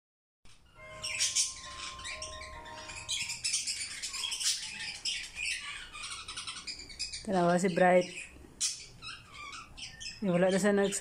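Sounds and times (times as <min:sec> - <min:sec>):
budgerigar chirping and warbling: 0:00.5 - 0:11.0.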